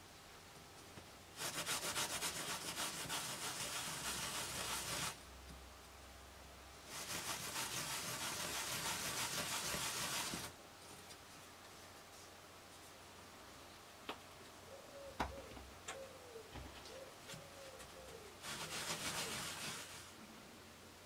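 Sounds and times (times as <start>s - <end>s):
wood piece rubbed on abrasive pad: 1.4s - 5.2s, 6.9s - 10.6s, 18.4s - 20.1s.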